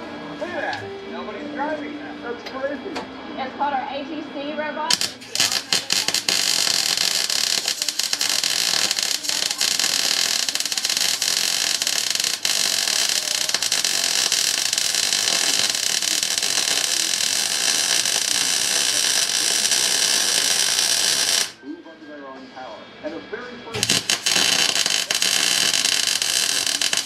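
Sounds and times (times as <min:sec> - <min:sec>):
spatter pops: 0:04.9 - 0:21.6, 0:23.8 - 0:27.0
welding arc crackling and hissing: 0:04.9 - 0:21.6, 0:23.8 - 0:27.0.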